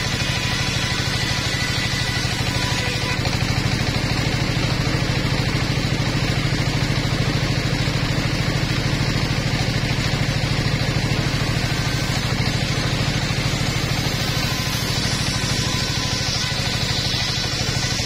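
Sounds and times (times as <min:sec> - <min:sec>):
sawmill engine running: 0:00.0 - 0:18.0
saw blade hissing: 0:11.7 - 0:18.0.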